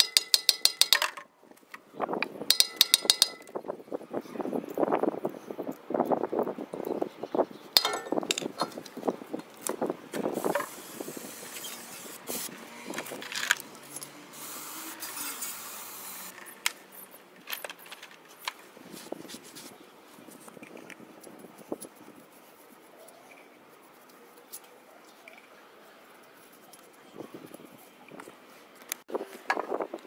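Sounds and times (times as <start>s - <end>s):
metal clinking and knocking: 0.0s - 1.3s, 2.5s - 3.6s, 7.8s - 8.8s.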